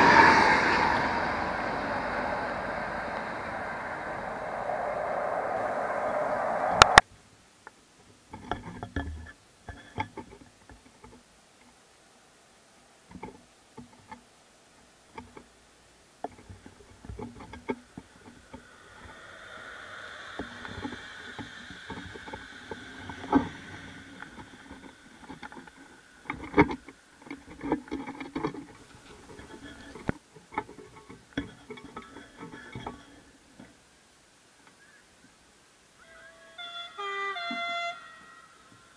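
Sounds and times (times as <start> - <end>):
train wheel and rail noise: 0.0 - 7.0, 18.0 - 26.5.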